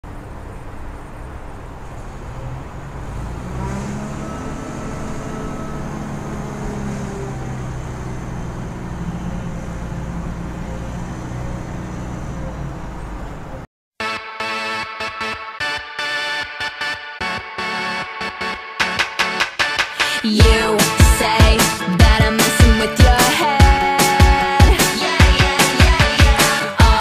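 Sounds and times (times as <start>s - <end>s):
traffic rumble and hiss: 0.0s - 13.7s
vehicle engine hum: 0.0s - 13.7s
pop-rock song: 19.2s - 27.0s.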